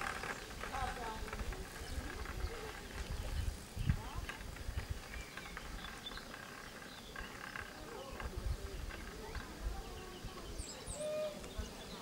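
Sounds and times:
distant voices: 0.0 - 12.0
low uneven rumble: 0.0 - 12.0
bird chirps: 5.0 - 8.3.

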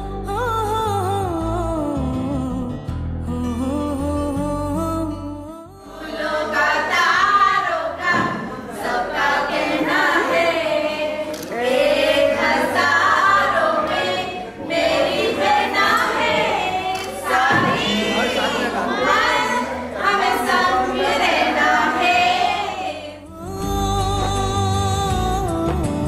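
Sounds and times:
women singing together: 5.8 - 23.6.

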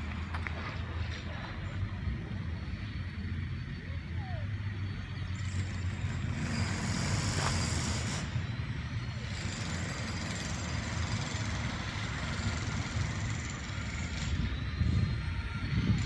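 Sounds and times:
wind rumbling on microphone: 12.6 - 16.0.

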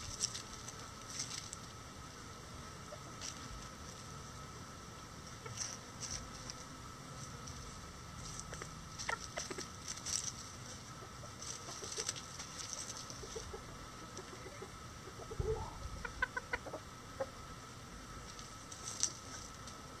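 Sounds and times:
chickens clucking: 2.8 - 4.1, 5.2 - 6.6, 7.5 - 17.5.

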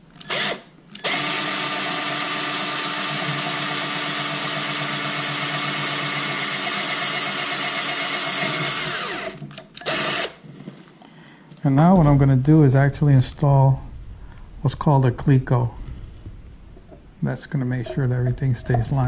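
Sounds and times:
cordless drill drilling: 0.2 - 10.4.

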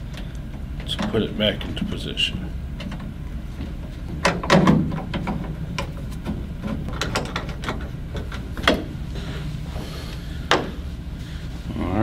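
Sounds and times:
panel knocks and rattles: 4.1 - 9.0.

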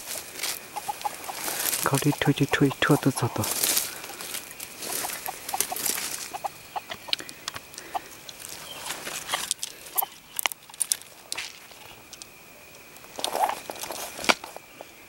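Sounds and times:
junglefowl clucking: 0.6 - 8.3.

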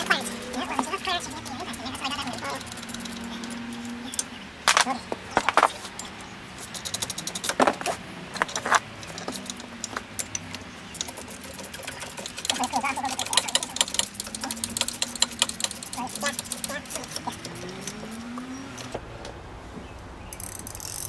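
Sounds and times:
metal tools clanking: 0.0 - 19.0
rapid clicking: 0.0 - 19.0.

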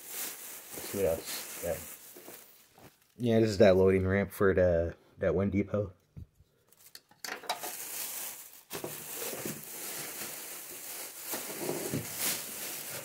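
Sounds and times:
plastic bag rustling: 0.0 - 3.3, 6.7 - 13.0.

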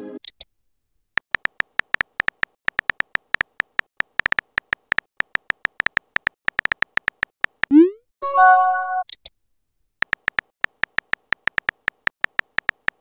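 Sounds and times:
keyboard tap clicks: 1.2 - 7.8, 10.0 - 13.0.

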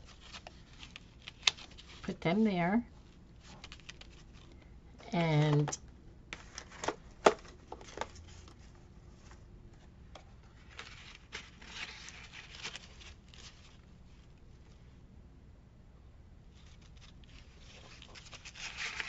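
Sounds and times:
paper rustling and crinkling: 0.0 - 2.2, 2.9 - 4.7, 6.4 - 9.5, 10.2 - 14.8, 16.5 - 19.0.

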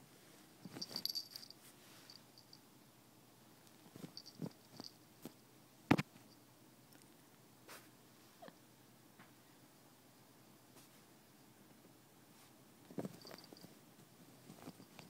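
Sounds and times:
fabric rustling: 0.6 - 2.5, 3.8 - 5.4, 12.4 - 15.0.

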